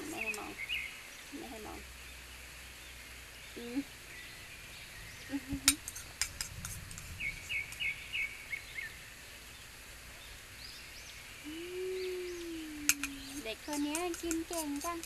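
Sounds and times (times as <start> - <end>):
bird chirping: 0.0 - 15.0
steady background hiss: 0.0 - 15.0
sharp clicks and taps: 5.6 - 7.1, 12.9 - 15.0.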